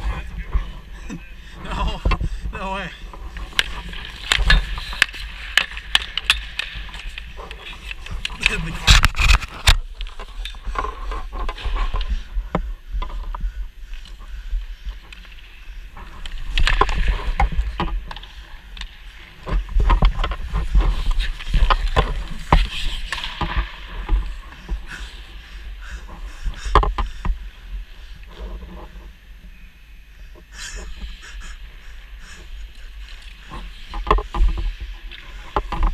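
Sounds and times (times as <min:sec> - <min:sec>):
skate blades scraping ice: 0:20.4 - 0:23.9.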